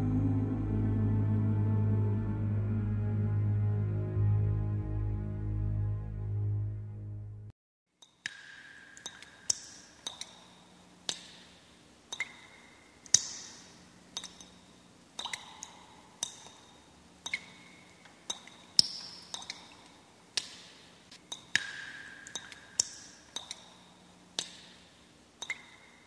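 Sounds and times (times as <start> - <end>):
faint low hum: 0.0 - 6.5
water drops plinking: 8.0 - 11.5, 12.1 - 20.6, 21.3 - 24.8, 25.4 - 26.0.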